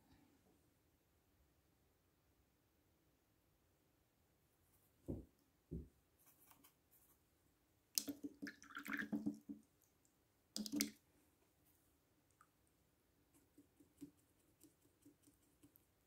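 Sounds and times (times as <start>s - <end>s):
soft thumps: 5.0s - 6.0s.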